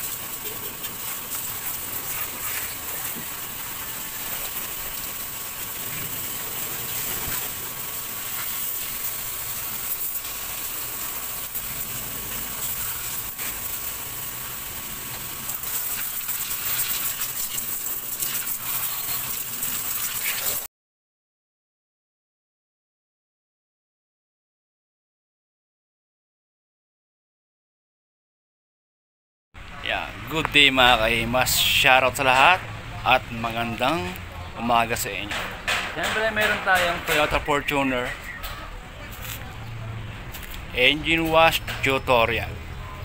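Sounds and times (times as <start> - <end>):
water spraying from hose: 0.0 - 20.7, 30.6 - 32.4.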